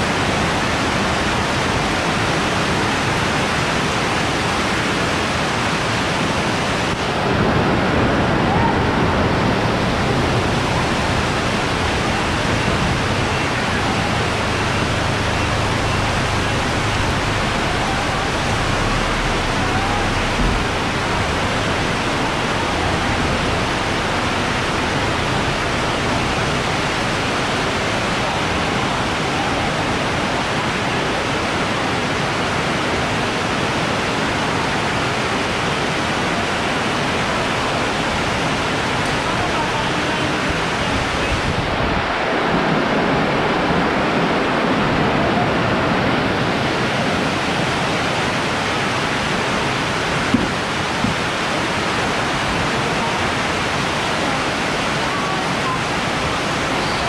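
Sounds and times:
heavy rain splashing: 0.0 - 57.0
low rumble: 7.4 - 30.3.

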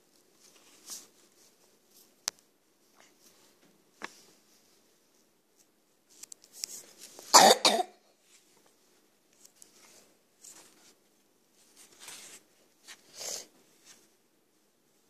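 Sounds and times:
sketchbook pages rustling: 0.0 - 7.3, 8.2 - 14.2
person coughing: 7.3 - 8.0.

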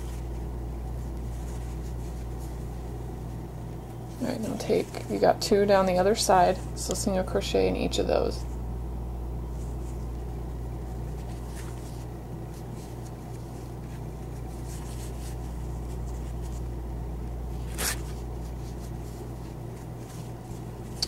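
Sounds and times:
yarn and crochet hook rustling: 0.0 - 3.4
steady low hum: 0.0 - 21.0.

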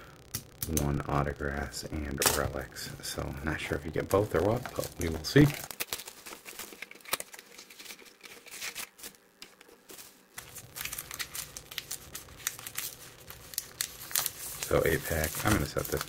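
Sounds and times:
card pack wrappers crinkling: 3.5 - 16.0.

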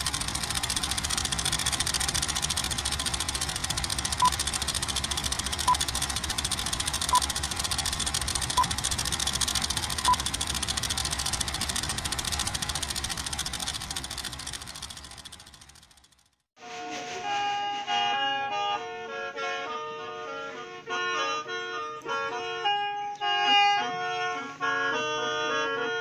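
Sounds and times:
film projector running: 0.0 - 16.5.

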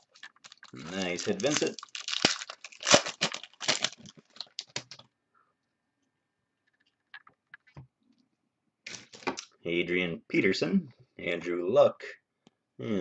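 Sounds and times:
trading cards clicking and rustling: 0.0 - 5.1.

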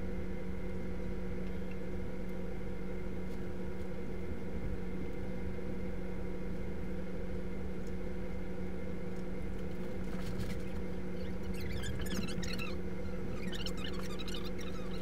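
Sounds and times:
steady room hum: 0.0 - 15.0
faint high squeaks and chirps: 11.1 - 15.0.

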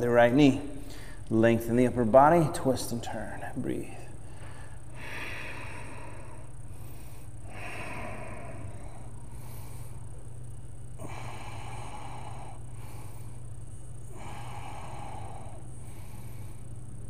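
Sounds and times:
steady low hum: 0.0 - 17.0
person breathing deeply: 0.8 - 1.3, 4.1 - 10.3, 11.0 - 17.0.

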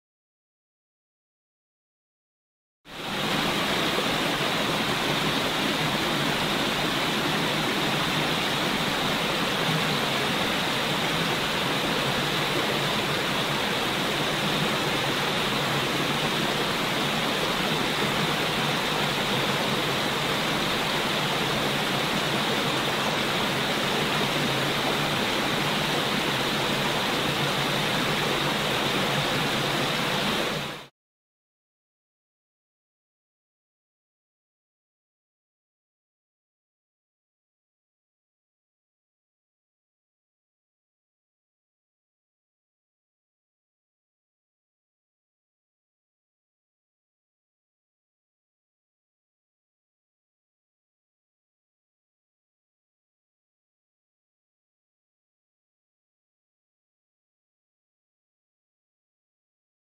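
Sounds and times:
waterfall roaring: 3.0 - 30.9.

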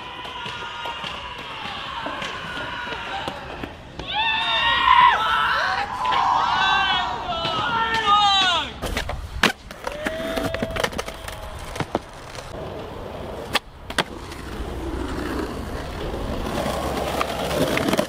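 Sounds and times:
skateboard wheels rolling on concrete: 0.0 - 18.0
skateboard clacking on ground: 7.4 - 18.0.

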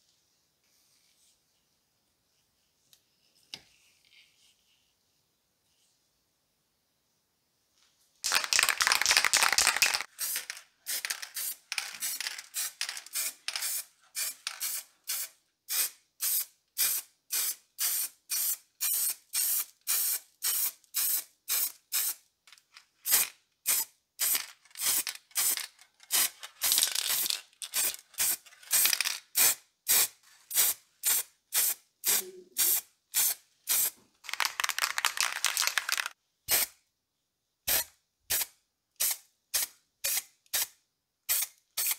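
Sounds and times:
spray paint can hissing: 8.3 - 22.2, 23.0 - 36.8, 37.7 - 40.7, 41.3 - 41.9.

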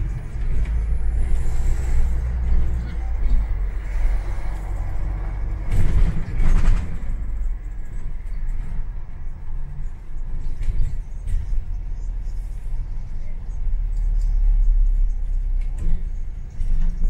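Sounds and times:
bus engine and road rumble: 0.0 - 17.0.

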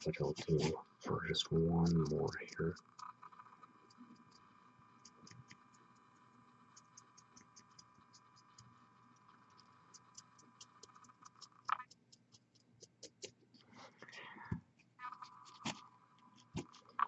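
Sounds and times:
faint steady hum: 0.0 - 17.0
faint small ticks: 1.8 - 13.4.

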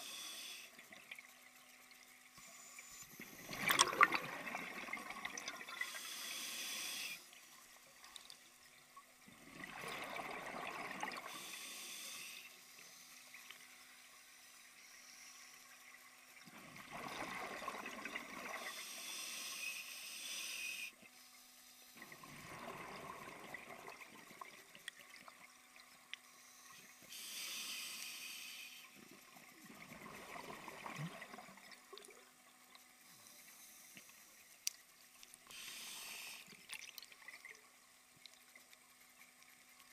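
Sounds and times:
faint steady hum: 0.0 - 39.9
exhaled air bubbles: 3.1 - 6.0, 9.3 - 11.4, 16.5 - 18.8, 22.0 - 25.2, 29.0 - 32.2
diver breathing through regulator: 5.8 - 7.3, 11.3 - 12.6, 18.6 - 21.0, 26.3 - 29.0, 35.5 - 36.6.

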